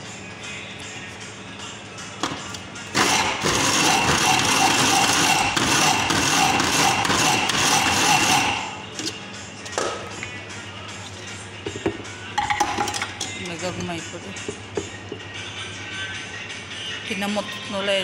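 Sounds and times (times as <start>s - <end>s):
blender grinding: 2.9s - 8.9s.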